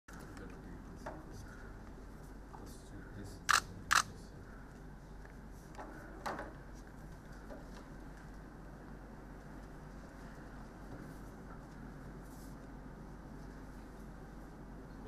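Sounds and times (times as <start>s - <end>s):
low room hum: 0.1s - 15.0s
camera shutter clicks: 3.5s - 4.1s
faint clicks and rustles: 4.5s - 14.6s.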